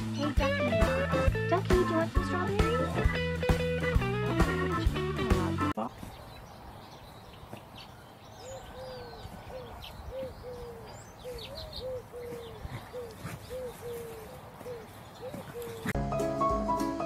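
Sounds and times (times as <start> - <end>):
bird cooing: 8.4 - 16.0.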